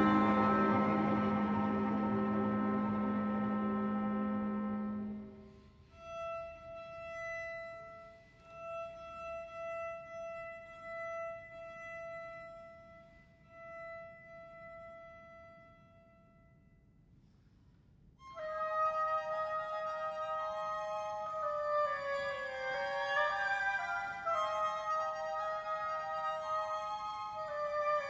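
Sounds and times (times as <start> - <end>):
violins holding high note: 0.0 - 5.4.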